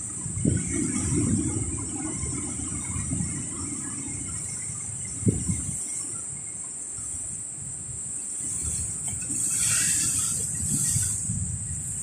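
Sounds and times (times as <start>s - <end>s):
surf among rocks: 0.0s - 12.0s
steady high hiss: 2.6s - 12.0s.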